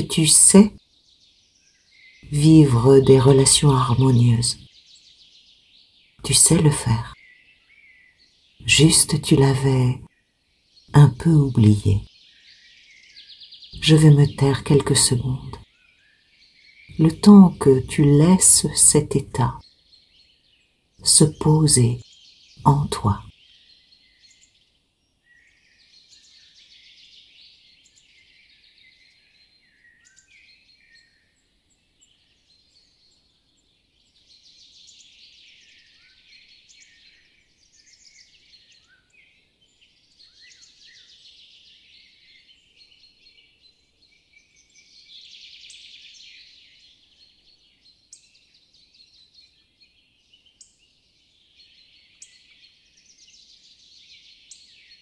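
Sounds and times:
birds chirping and trilling: 0.0s - 55.0s.

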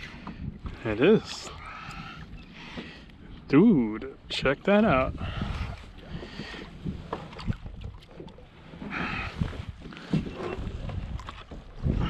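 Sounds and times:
water lapping against kayak: 0.0s - 12.0s
wind on microphone: 4.9s - 12.0s.

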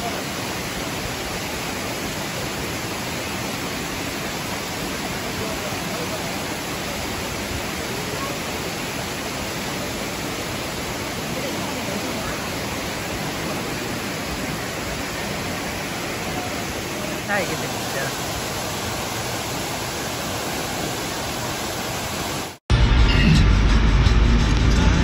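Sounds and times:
waterfall rushing: 0.0s - 22.6s
faint voices: 5.1s - 18.2s.

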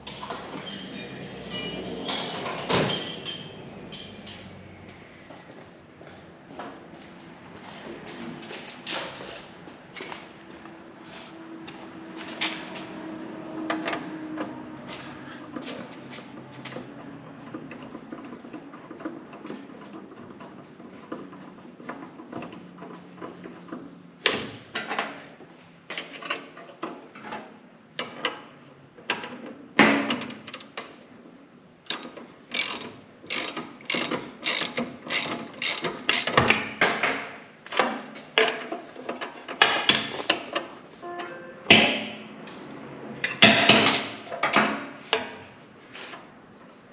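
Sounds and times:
ratchet wrench clicking: 31.9s - 36.4s.

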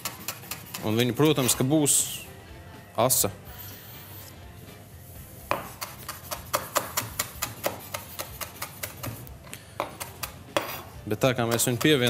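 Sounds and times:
knife chopping on wooden board: 5.5s - 9.2s, 9.8s - 12.0s.

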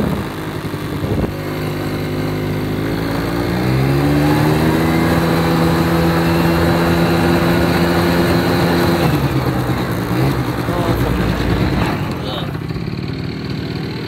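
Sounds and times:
engine revving at high revs: 0.0s - 14.0s.

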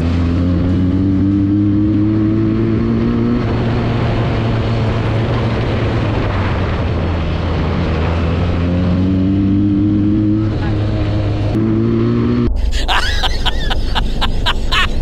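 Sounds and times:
motorcycle engine and exhaust: 0.0s - 12.6s
rushing wind noise: 2.8s - 9.4s
steady low drone: 10.6s - 15.0s.

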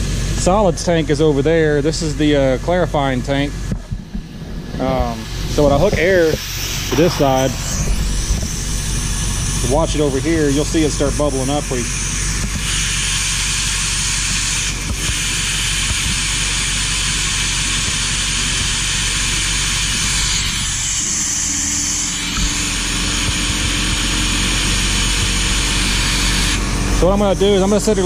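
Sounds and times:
motor hum: 0.0s - 28.0s
air rushing through pipe: 3.6s - 16.2s
high hiss: 4.7s - 14.6s.

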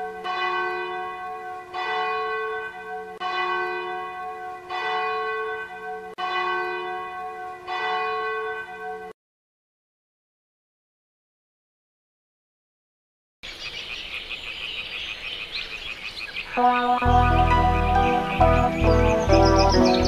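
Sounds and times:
church bell tolling: 0.0s - 9.2s, 16.6s - 20.0s.

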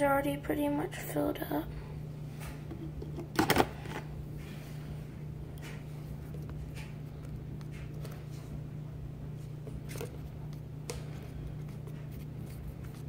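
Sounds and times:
steady low hum: 0.0s - 13.0s
spoon stirring thick slime: 5.4s - 13.0s.

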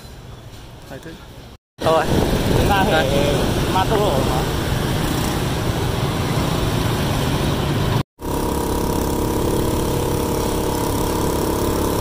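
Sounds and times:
road noise: 0.0s - 12.0s
scooter engines in traffic: 0.1s - 12.0s
motorbike engine running close by: 8.2s - 12.0s.

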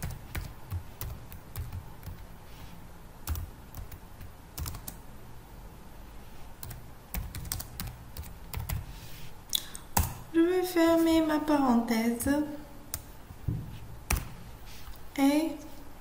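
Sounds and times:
keyboard typing: 0.0s - 2.3s, 3.2s - 5.0s, 6.6s - 8.9s
low steady hum: 0.0s - 16.0s.

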